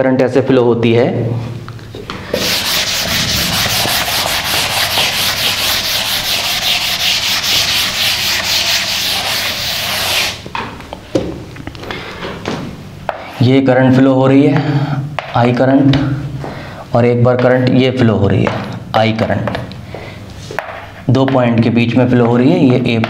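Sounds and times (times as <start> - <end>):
duster wiping chalkboard: 2.1 - 10.5.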